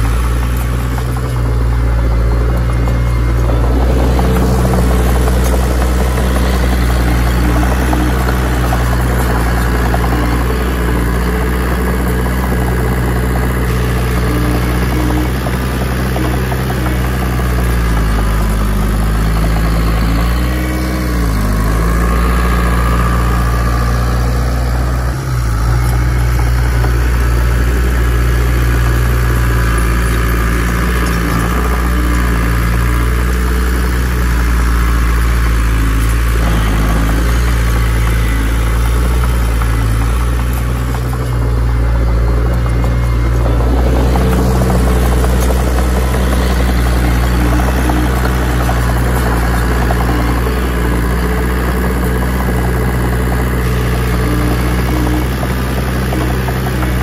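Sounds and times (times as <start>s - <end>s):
heavy diesel engine under load: 0.0s - 57.0s.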